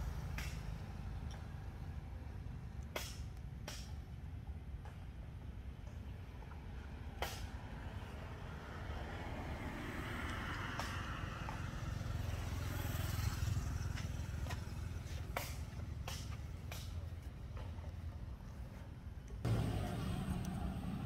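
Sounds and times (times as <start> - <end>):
passing vehicle engine rumble: 6.5 - 21.0.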